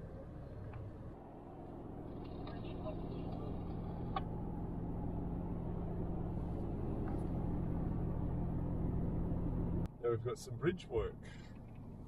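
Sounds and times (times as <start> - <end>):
engine drone: 0.0 - 9.9
road rumble: 0.0 - 12.0.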